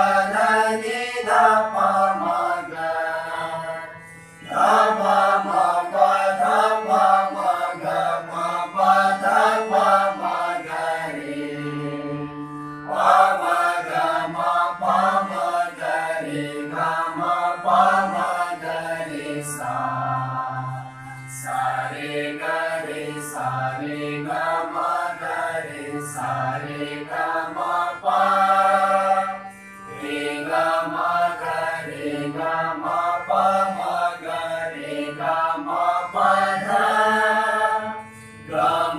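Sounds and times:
group singing scale exercises: 0:00.0 - 0:38.9
harmonium: 0:00.0 - 0:38.9.

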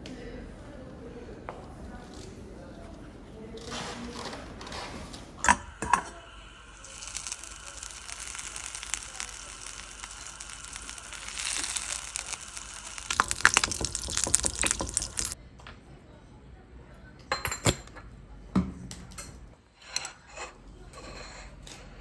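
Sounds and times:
fat sizzling in a frying pan: 0:05.8 - 0:15.4
spatula scraping a pan: 0:19.8 - 0:22.0.

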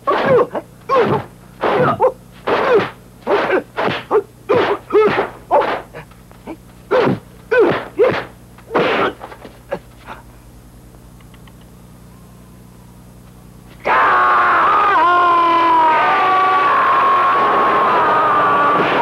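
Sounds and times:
fighters shouting battle cries: 0:13.8 - 0:19.0.

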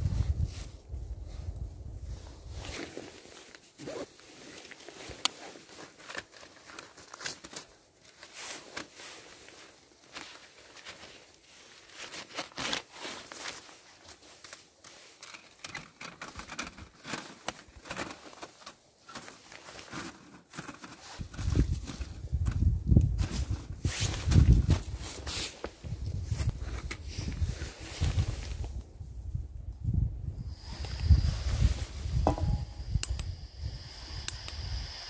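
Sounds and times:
rustling and crinkling: 0:00.0 - 0:29.1.

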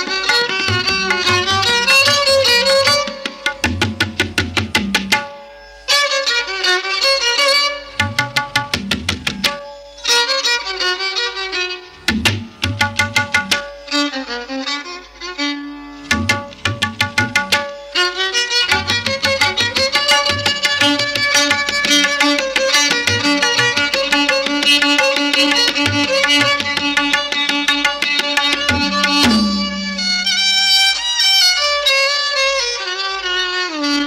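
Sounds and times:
quick percussive strokes: 0:18.7 - 0:30.4
pitched melody: 0:28.4 - 0:30.5.

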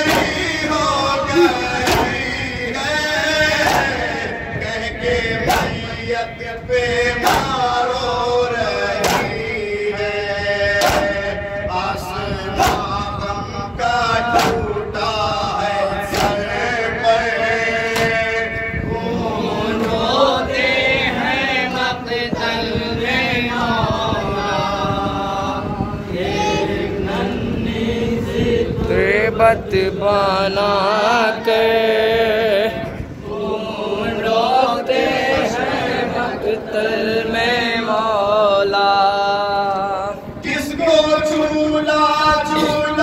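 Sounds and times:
chest-beating slaps: 0:00.0 - 0:00.5, 0:01.4 - 0:02.4, 0:03.6 - 0:04.2, 0:05.4 - 0:05.9, 0:07.2 - 0:07.7, 0:09.0 - 0:09.5, 0:10.8 - 0:11.2, 0:12.6 - 0:13.0, 0:14.3 - 0:14.7, 0:16.1 - 0:16.6, 0:17.9 - 0:18.2
men chanting through microphone: 0:00.0 - 0:43.0.

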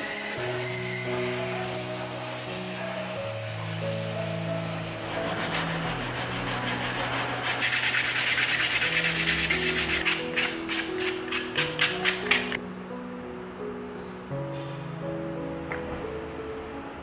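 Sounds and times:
knife scraping wood: 0:05.0 - 0:12.6.

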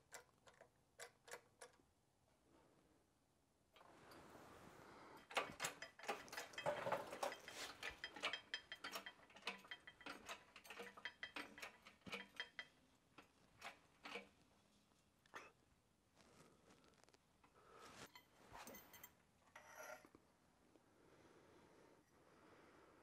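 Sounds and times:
press clicking and clacking: 0:05.2 - 0:14.3.

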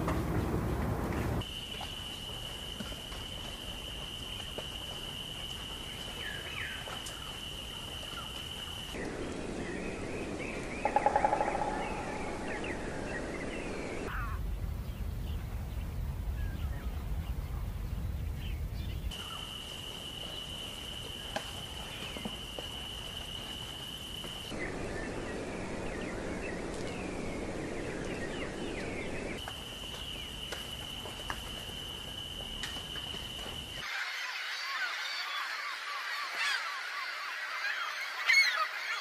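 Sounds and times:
low rumble: 0:00.0 - 0:01.4.

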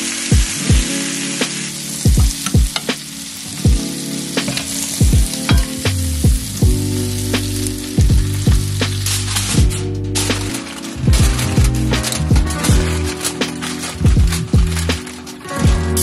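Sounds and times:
chicken sizzling in a skillet: 0:00.0 - 0:16.0
background music with deep drums: 0:00.3 - 0:00.9, 0:02.1 - 0:02.9, 0:03.7 - 0:03.9, 0:04.9 - 0:16.0.

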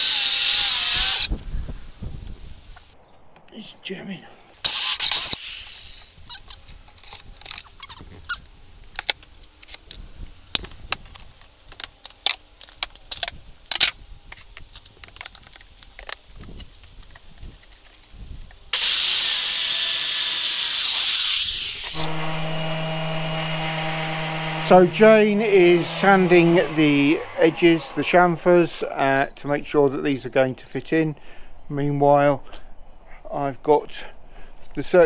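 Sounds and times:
power tool rushing on wood: 0:18.8 - 0:28.9
steady motor hum: 0:21.8 - 0:28.6.

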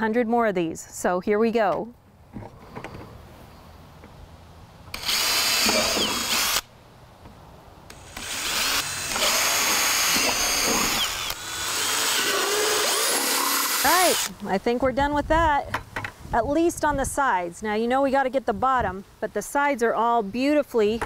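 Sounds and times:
cordless drill boring through plastic: 0:04.9 - 0:06.6, 0:07.9 - 0:14.3.

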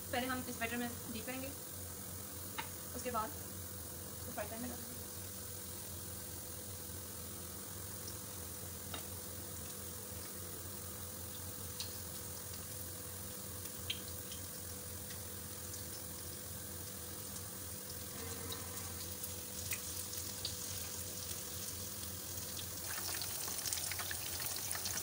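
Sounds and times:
fish sizzling in hot oil: 0:00.1 - 0:25.0.

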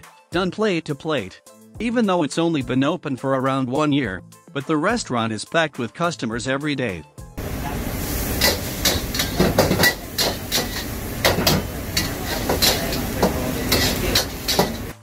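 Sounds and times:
food sizzling: 0:07.4 - 0:15.0
spatula scraping a wok: 0:07.7 - 0:15.0.

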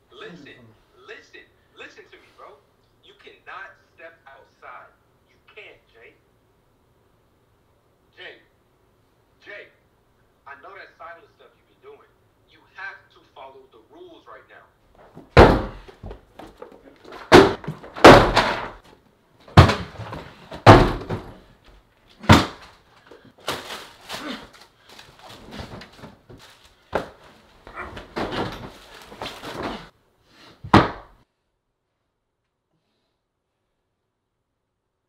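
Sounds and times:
rustling: 0:14.9 - 0:29.9
heavy bangs and thuds: 0:15.2 - 0:16.2, 0:17.1 - 0:18.8, 0:19.5 - 0:21.5.

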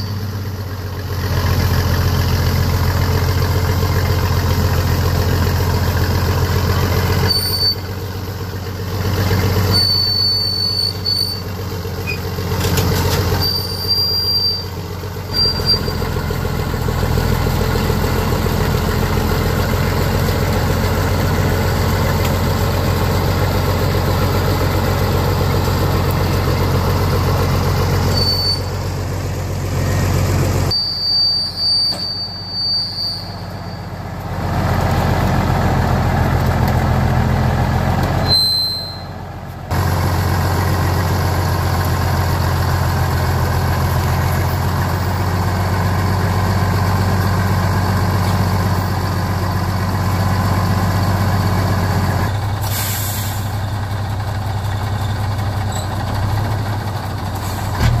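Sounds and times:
short high-pitched squeals: 0:00.0 - 0:00.4, 0:07.1 - 0:08.0, 0:09.5 - 0:12.3, 0:13.0 - 0:16.4, 0:27.8 - 0:28.9, 0:30.6 - 0:34.2, 0:38.2 - 0:39.3
vehicle engine running: 0:00.0 - 0:31.2, 0:33.3 - 0:58.0.

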